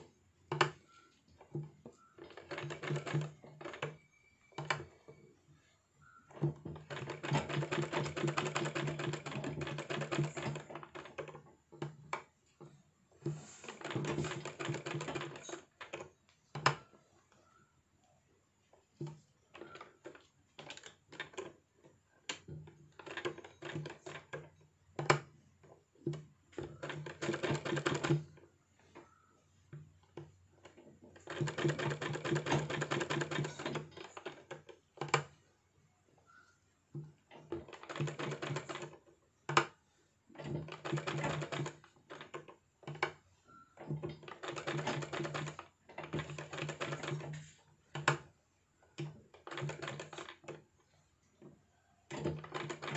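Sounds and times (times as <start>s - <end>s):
sewing machine needle rattle: 1.5s - 5.1s, 6.3s - 12.3s, 13.2s - 16.9s, 22.3s - 29.1s, 29.7s - 35.4s, 37.1s - 39.8s, 40.4s - 48.3s, 49.0s - 51.5s, 52.1s - 52.9s.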